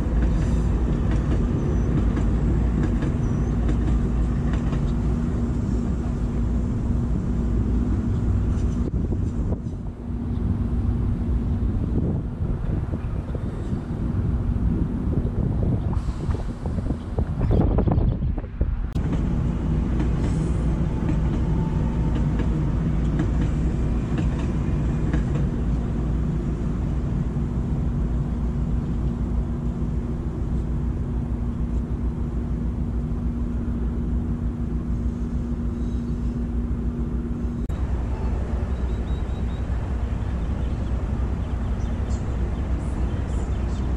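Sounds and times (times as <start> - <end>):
wind buffeting microphone: 0.0 - 31.4
train rumbling past: 0.0 - 43.9.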